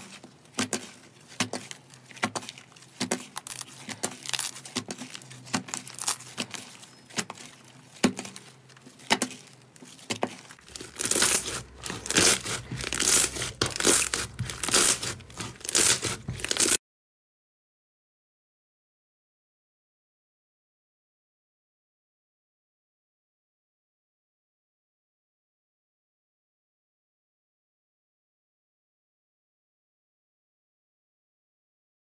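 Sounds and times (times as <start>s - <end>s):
slime popping and crackling: 1.4s - 7.4s, 10.4s - 16.8s.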